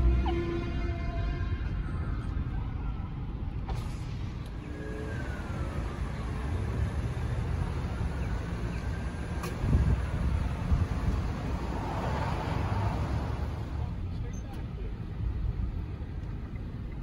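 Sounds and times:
faint falling siren: 0:00.0 - 0:03.7, 0:04.5 - 0:10.5
road traffic rumble: 0:00.0 - 0:17.0.

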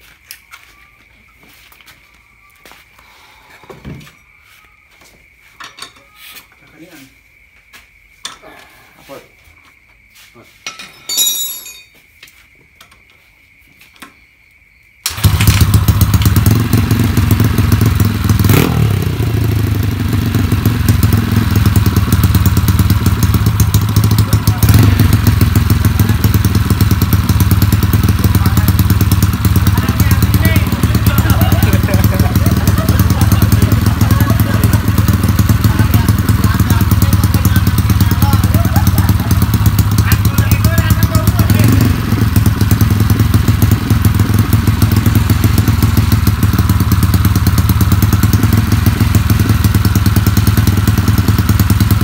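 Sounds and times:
motorbike engine revving loudly: 0:15.1 - 0:52.0.

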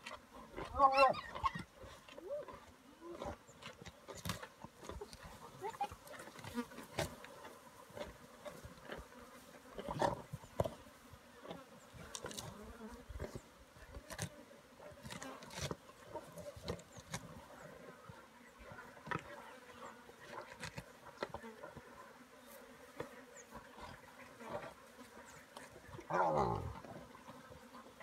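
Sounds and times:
flies buzzing: 0:02.7 - 0:28.0
hyena growl: 0:26.0 - 0:27.1.

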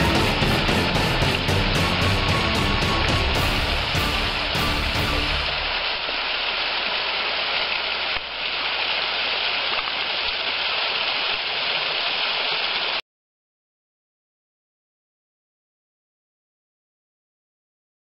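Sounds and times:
waterfall splashing into pool: 0:00.0 - 0:13.0.

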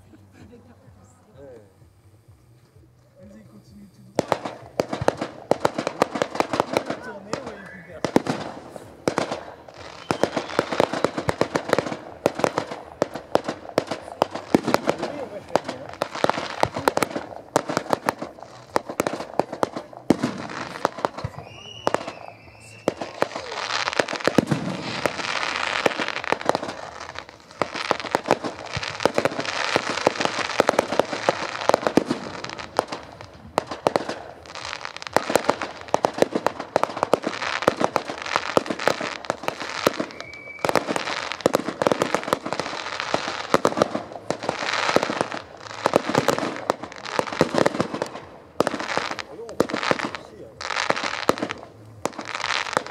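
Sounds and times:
continuous hiss: 0:00.0 - 0:52.9
fireworks crackling and popping: 0:00.0 - 0:52.9
high firework whistle: 0:06.8 - 0:12.6, 0:20.6 - 0:29.1, 0:39.6 - 0:41.4.

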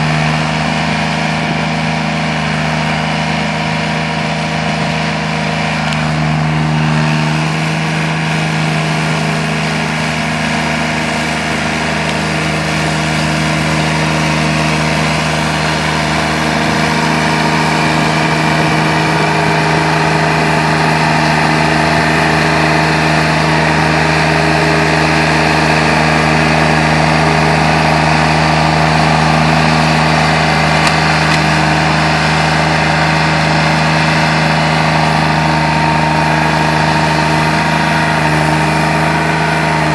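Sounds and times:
mower engine running: 0:00.0 - 0:39.9.

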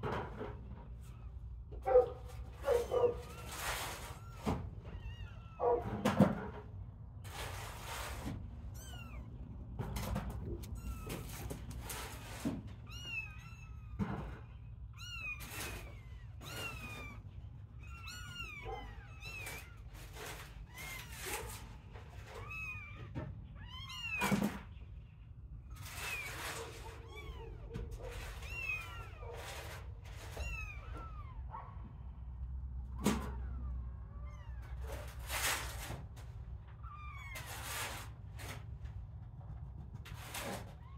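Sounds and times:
kittens mewing: 0:01.0 - 0:06.1, 0:12.8 - 0:24.7, 0:25.7 - 0:32.0.

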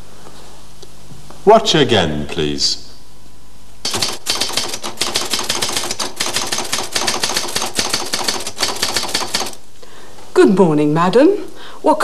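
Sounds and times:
typewriter typing: 0:03.8 - 0:09.6.

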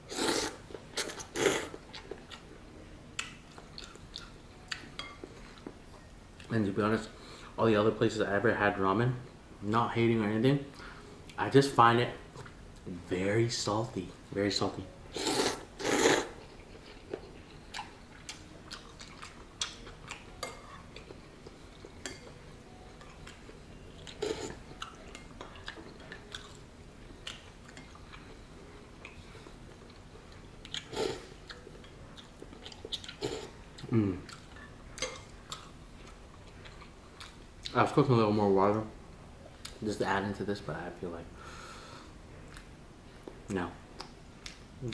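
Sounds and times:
man slurping noodles: 0:00.1 - 0:00.6, 0:15.2 - 0:16.3
chewing: 0:03.2 - 0:05.8, 0:15.2 - 0:22.4, 0:23.0 - 0:28.4, 0:29.0 - 0:37.7.

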